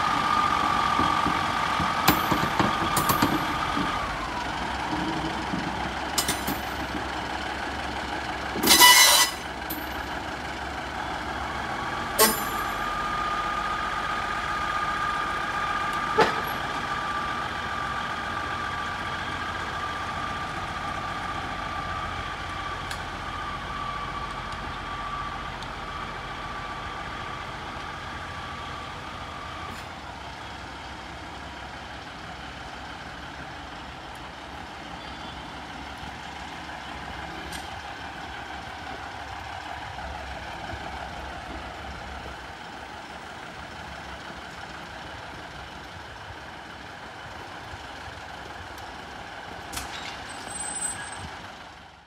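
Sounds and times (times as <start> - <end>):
diesel engines idling: 0.0 - 52.0
short steady tone: 8.7 - 9.5, 12.2 - 12.9.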